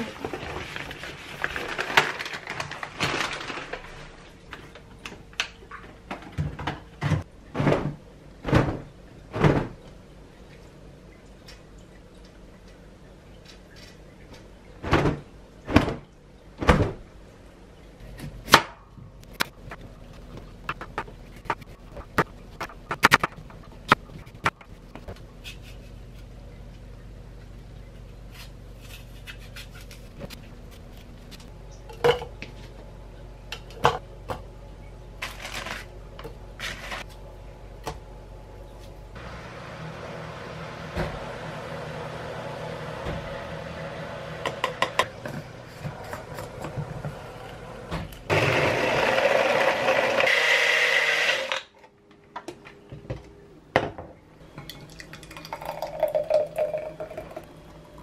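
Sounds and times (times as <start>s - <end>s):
blender running: 48.3s - 51.7s
smoothie pouring into glass: 54.8s - 57.5s.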